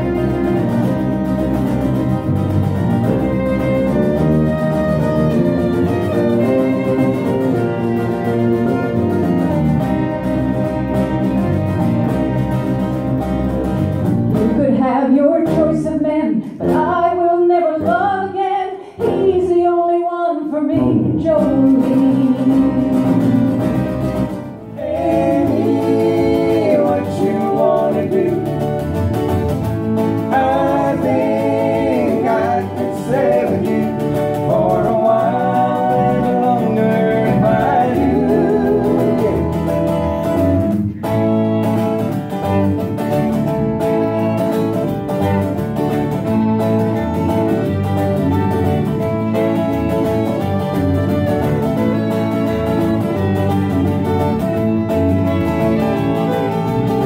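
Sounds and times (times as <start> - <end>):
fiddle: 0.0 - 14.5, 21.4 - 57.0
strummed acoustic guitar: 0.0 - 17.0, 20.8 - 57.0
bass guitar: 0.0 - 19.8, 20.7 - 57.0
woman singing: 14.3 - 23.7, 24.9 - 28.6, 30.3 - 39.6.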